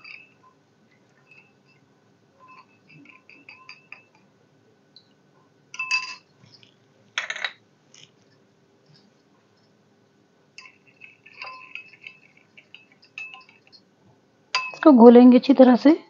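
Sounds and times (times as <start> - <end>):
spoon scraping rattle: 0.0 - 0.4, 1.1 - 1.8, 2.4 - 4.2, 5.8 - 9.1, 10.6 - 13.8
spoon clinking against glass bowl: 0.0 - 0.5, 1.1 - 1.8, 2.4 - 4.2, 5.7 - 6.6, 10.6 - 13.8, 14.5 - 14.9.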